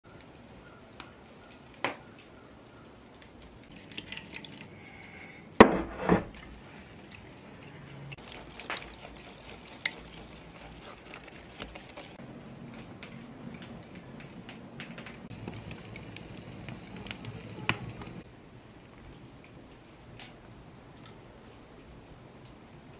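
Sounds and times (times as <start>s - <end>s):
liquid splashing: 3.7s - 18.2s
hands working moist dough: 5.6s - 18.2s.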